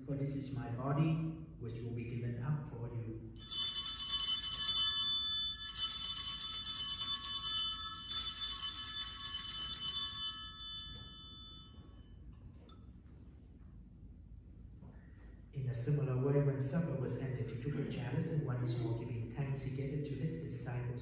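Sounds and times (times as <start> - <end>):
small brass bells ringing: 3.4 - 12.8.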